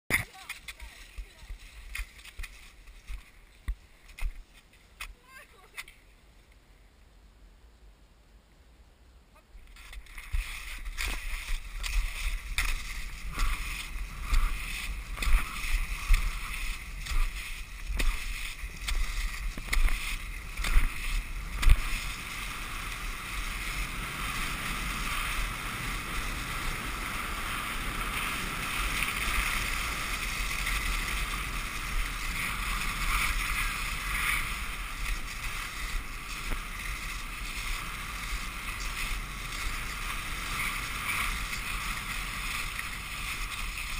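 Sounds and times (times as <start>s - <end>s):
skis knocking and scraping: 0.1s - 6.1s, 9.6s - 43.9s
skis gliding on snow: 0.1s - 6.5s, 9.6s - 43.9s
wind rumble on microphone: 9.6s - 43.9s.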